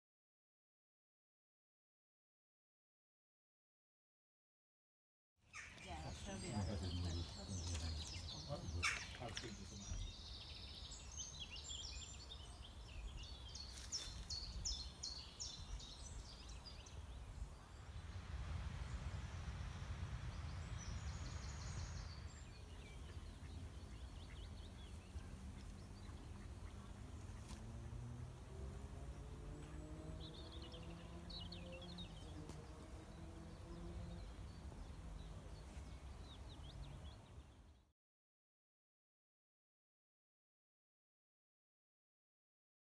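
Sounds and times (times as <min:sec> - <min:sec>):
songbirds chirping: 0:05.5 - 0:37.9
steady low rumble: 0:14.1 - 0:29.0.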